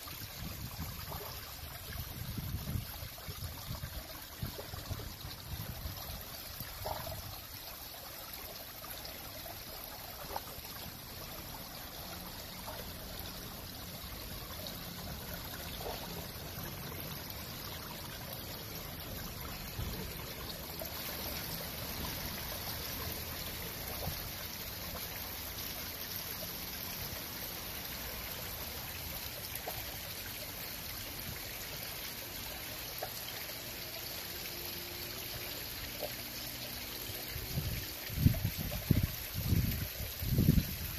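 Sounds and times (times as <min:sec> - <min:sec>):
water trickling in a fountain: 0:00.0 - 0:40.9.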